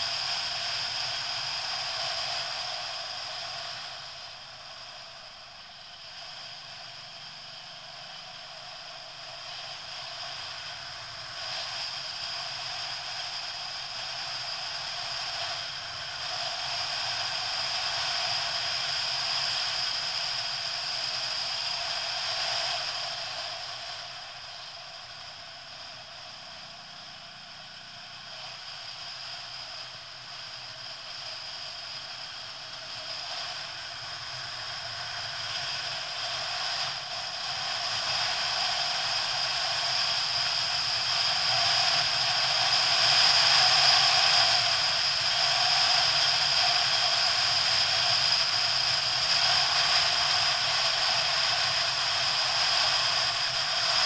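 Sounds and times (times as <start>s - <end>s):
motorcycle engine and road noise: 0.0s - 54.0s.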